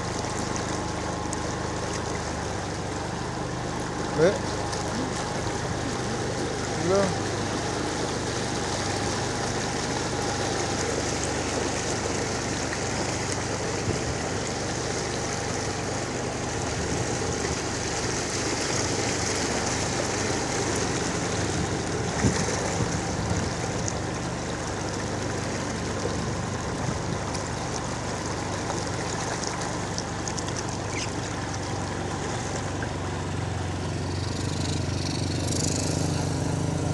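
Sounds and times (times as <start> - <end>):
water splashing around wheels: 0.0 - 36.9
small motorcycle engine running: 2.3 - 24.7, 30.7 - 36.9.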